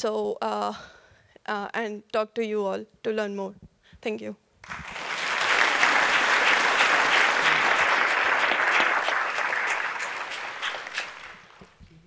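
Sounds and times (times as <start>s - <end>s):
audience applauding: 4.6s - 11.8s.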